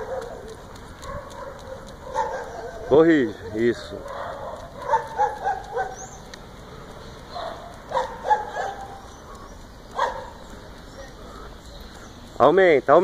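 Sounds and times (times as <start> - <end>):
dog barking: 0.0 - 6.2, 7.3 - 10.5.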